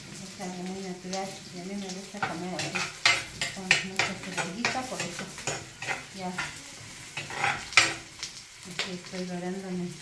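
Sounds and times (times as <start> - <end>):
oil sizzling: 0.0 - 10.0
spoon stirring and scraping: 2.2 - 8.1.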